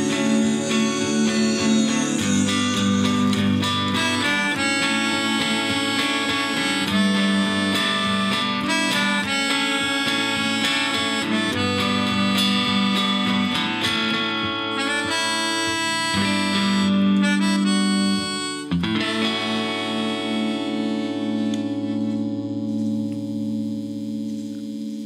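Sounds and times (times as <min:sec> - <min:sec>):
melodica melody: 0:00.0 - 0:24.4
electric guitar: 0:00.0 - 0:25.0.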